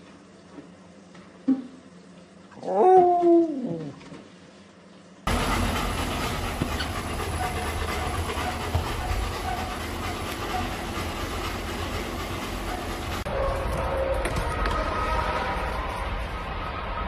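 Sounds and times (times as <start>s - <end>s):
treadmill motor whirring: 5.3s - 14.9s.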